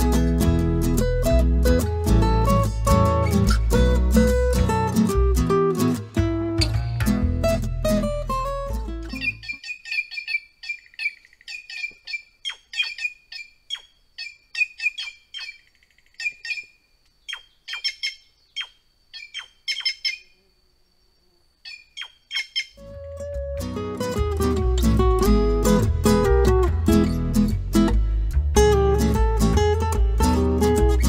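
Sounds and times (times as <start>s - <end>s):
jay calling: 9.1s - 20.5s, 21.6s - 23.0s.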